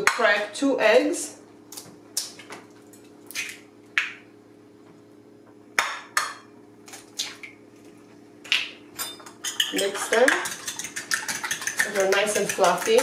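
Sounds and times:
eggs tapped on bowl rim: 9.5 - 13.0.

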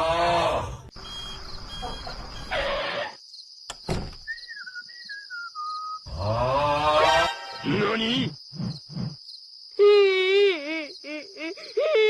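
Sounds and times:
falling whistled tone: 4.2 - 6.1
insect-like chirring: 6.9 - 9.8.

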